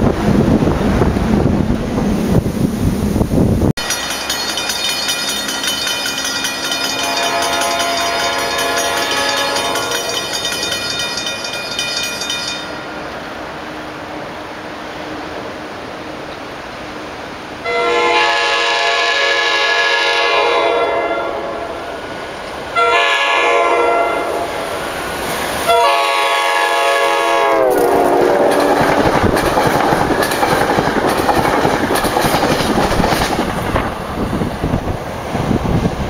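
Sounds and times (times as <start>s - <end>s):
train coaches rushing and clattering: 3.8s - 36.0s
train air horn blasts: 7.0s - 10.1s, 17.6s - 21.9s, 22.8s - 24.6s, 25.7s - 29.3s.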